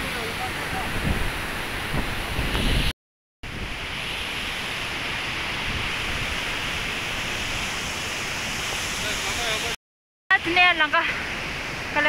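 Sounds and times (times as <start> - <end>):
waterfall rushing: 3.6 - 9.8.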